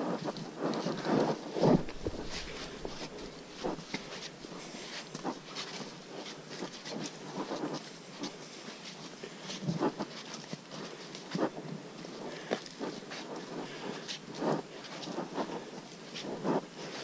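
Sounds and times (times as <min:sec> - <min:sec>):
faint steady hiss: 0:00.0 - 0:17.0
footsteps on muddy trail: 0:00.2 - 0:11.6.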